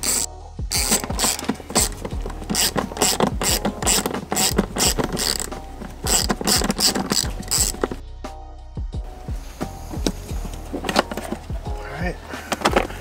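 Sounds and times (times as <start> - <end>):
hand ratchet clicking: 0.0 - 8.0.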